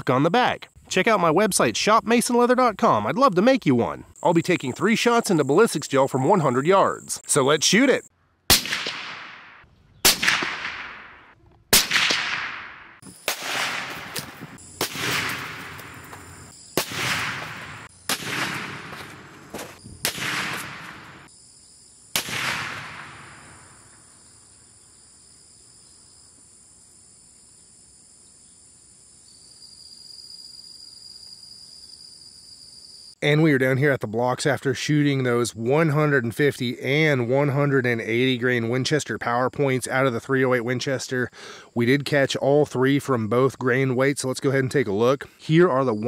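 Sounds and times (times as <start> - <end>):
insects chirring: 0.0 - 46.0
rifle shots: 8.5 - 21.3, 22.2 - 23.7.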